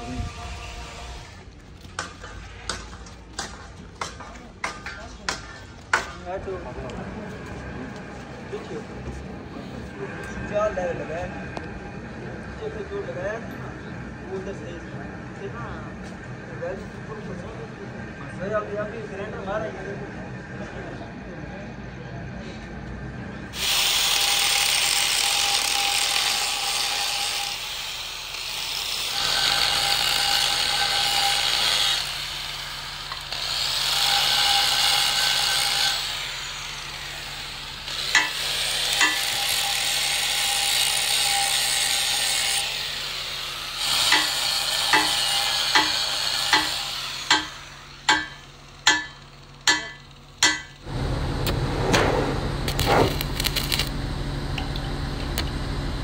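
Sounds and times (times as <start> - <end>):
angle grinder grinding metal: 23.6 - 50.8, 52.7 - 53.9
sharp knocks: 48.1 - 50.8
welding arc crackling: 52.6 - 54.0.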